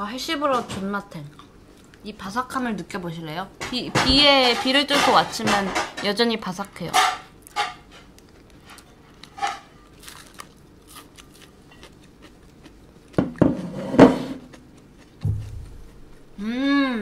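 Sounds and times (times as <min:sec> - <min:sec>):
crunchy food being chewed: 0:07.4 - 0:13.4, 0:14.4 - 0:16.4.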